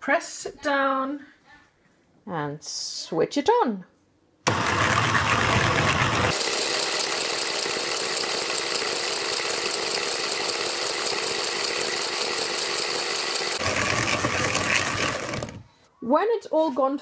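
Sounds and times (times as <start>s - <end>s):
stand mixer motor running: 4.5s - 15.6s.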